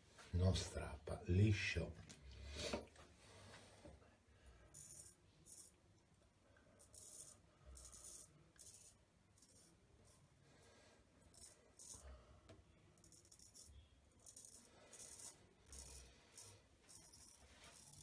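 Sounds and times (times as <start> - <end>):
razor scraping through beard: 4.7 - 5.8, 6.8 - 10.3, 11.3 - 12.1, 13.0 - 18.0.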